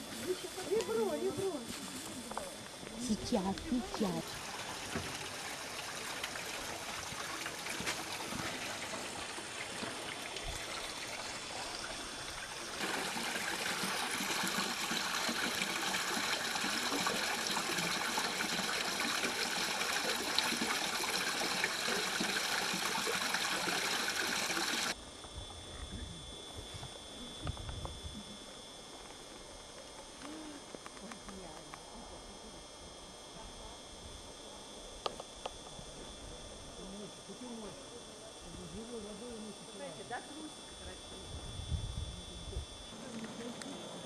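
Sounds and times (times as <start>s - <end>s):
water running and trickling: 3.2s - 25.0s.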